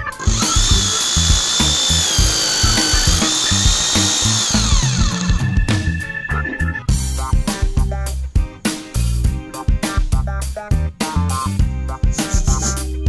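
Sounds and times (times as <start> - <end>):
background music with beat: 0.0 - 13.0
power drill whining: 0.2 - 6.2.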